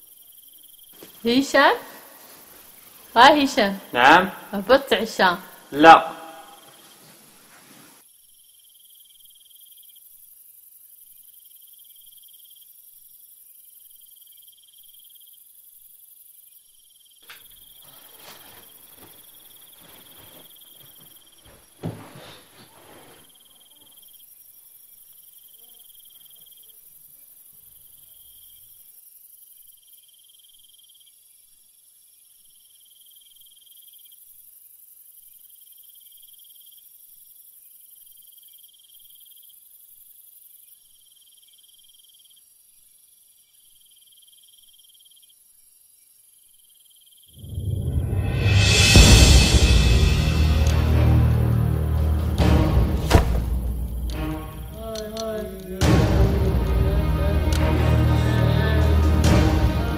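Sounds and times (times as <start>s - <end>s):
crickets chirping: 0.0s - 59.9s
rustling: 0.9s - 3.2s, 6.6s - 8.0s, 17.2s - 23.8s
sharp knock: 52.4s - 54.7s.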